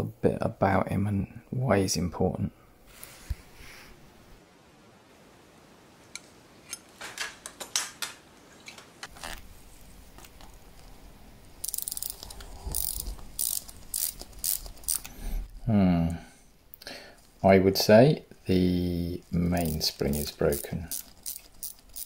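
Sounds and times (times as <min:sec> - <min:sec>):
watch winding clicks: 0:11.6 - 0:15.2, 0:19.6 - 0:22.0.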